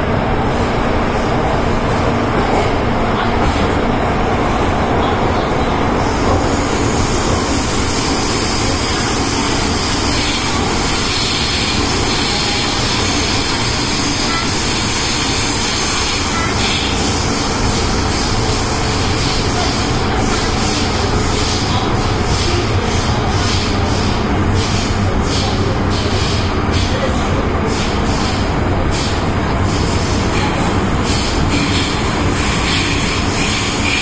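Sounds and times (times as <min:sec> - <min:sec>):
train wheels rumbling: 0:00.0 - 0:34.0
hiss: 0:06.0 - 0:21.6, 0:28.9 - 0:34.0.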